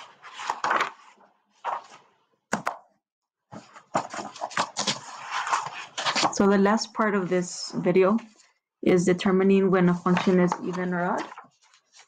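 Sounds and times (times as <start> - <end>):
paper rustling and crinkling: 0.0 - 2.0, 3.5 - 6.4, 9.9 - 12.0.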